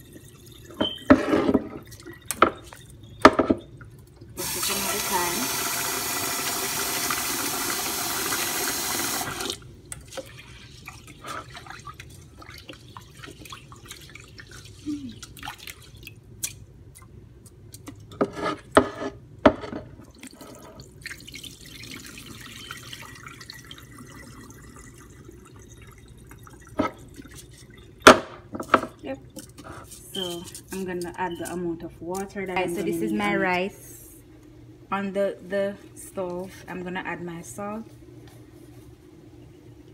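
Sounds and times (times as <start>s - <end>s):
water sloshing and splashing: 0.1s - 3.1s, 9.4s - 18.7s.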